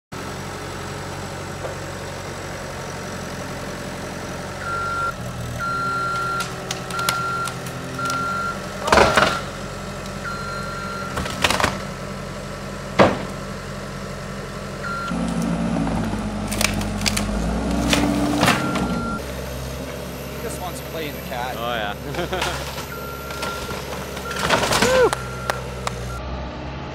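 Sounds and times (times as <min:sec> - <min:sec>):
diesel engine running: 0:00.1 - 0:26.9
backup alarm beeping: 0:04.6 - 0:09.6, 0:10.2 - 0:11.2, 0:14.8 - 0:15.2, 0:18.6 - 0:19.3, 0:22.8 - 0:26.2
wood cracking and crashing: 0:11.1 - 0:11.9, 0:15.2 - 0:18.7, 0:22.2 - 0:25.2.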